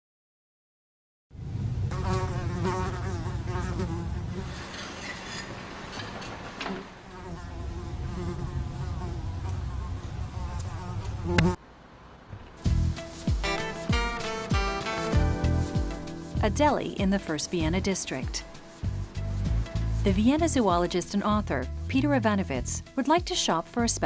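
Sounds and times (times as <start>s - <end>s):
fly buzzing: 1.9s - 11.6s, 17.5s - 20.1s.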